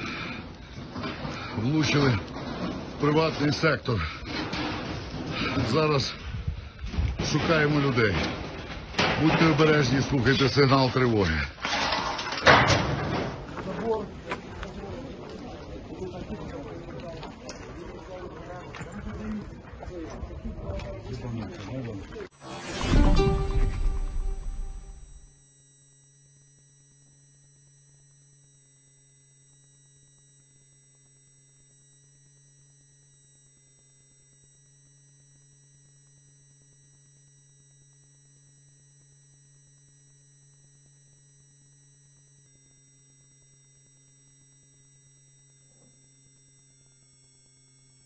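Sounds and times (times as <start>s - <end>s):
thin high tones: 22.4s - 25.3s
tiny electronic blip: 22.4s - 25.3s
faint electronic hum: 22.4s - 48.0s.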